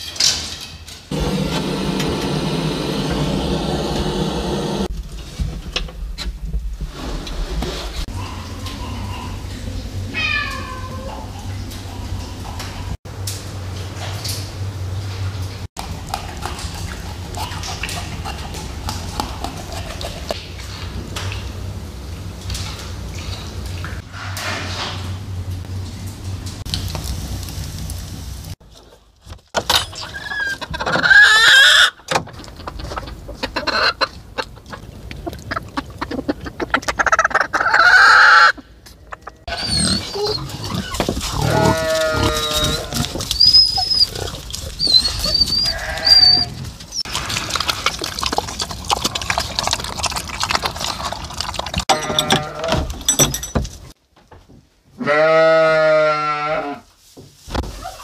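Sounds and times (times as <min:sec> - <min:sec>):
goats and sheep bleating: 0:39.2 - 0:43.2, 0:45.3 - 0:46.6, 0:51.9 - 0:52.9, 0:55.0 - 0:56.9.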